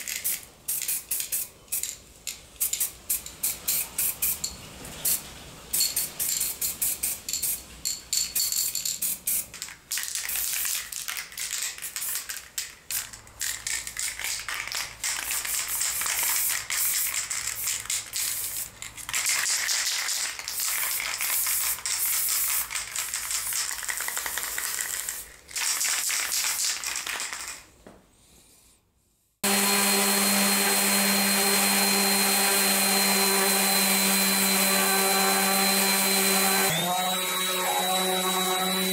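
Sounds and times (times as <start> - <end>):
spray paint can hissing: 0.0 - 4.4, 5.0 - 7.6, 8.4 - 27.5
orbital sander running on wood: 29.4 - 38.9.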